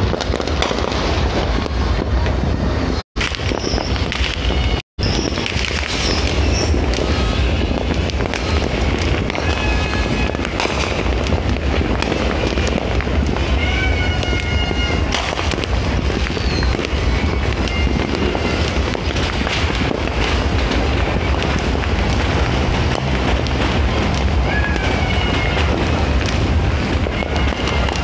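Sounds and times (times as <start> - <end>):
fireworks popping and crackling: 0.0 - 28.0
wind rumble on microphone: 0.0 - 28.0
high whistling tones: 16.3 - 18.8.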